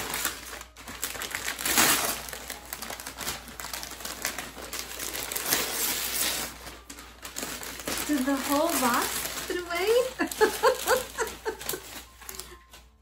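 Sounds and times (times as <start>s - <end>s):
paper rustling and crinkling: 0.0s - 13.0s.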